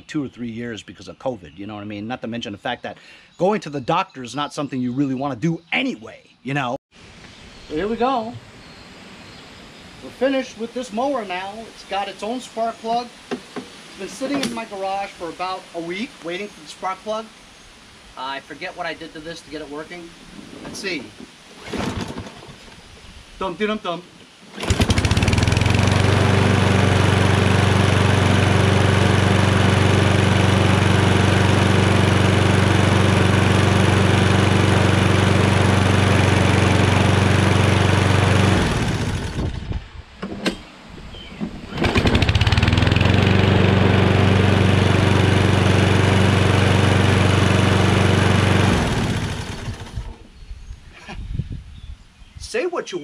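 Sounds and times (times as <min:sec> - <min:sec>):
lawn mower engine running: 0:21.6 - 0:22.6, 0:24.5 - 0:39.6, 0:41.7 - 0:50.2.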